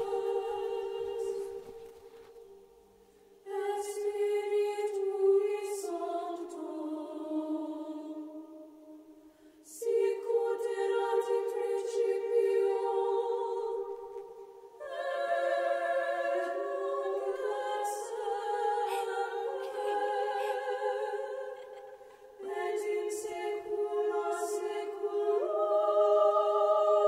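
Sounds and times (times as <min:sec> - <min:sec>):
choir singing held chords: 0:00.0 - 0:27.0.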